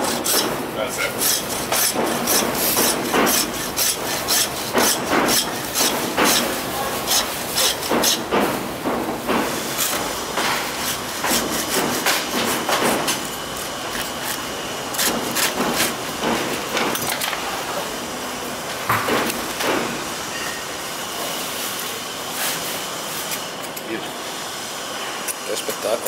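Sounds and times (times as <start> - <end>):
cleaver chopping meat on wood: 1.7 - 13.2, 15.0 - 17.0.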